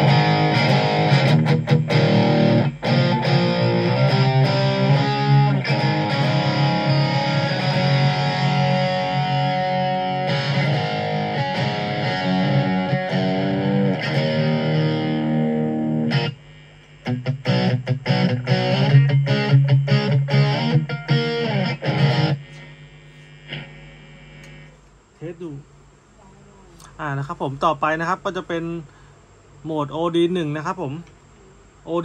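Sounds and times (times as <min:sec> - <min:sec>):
overdriven electric guitar: 0:00.0 - 0:24.8.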